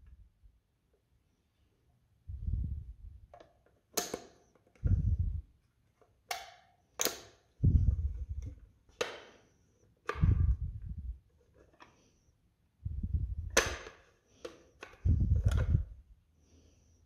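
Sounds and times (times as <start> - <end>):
plastic clicks and snaps: 3.3 - 4.9, 6.0 - 7.6, 13.4 - 15.8.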